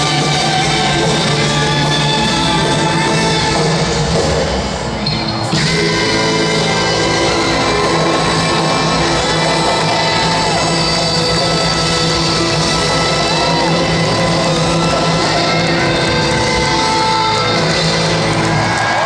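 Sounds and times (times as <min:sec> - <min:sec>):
saxophone: 0:00.0 - 0:04.1, 0:05.2 - 0:19.0
drums: 0:00.0 - 0:19.0
electric guitars: 0:00.0 - 0:19.0
trumpets: 0:05.4 - 0:19.0.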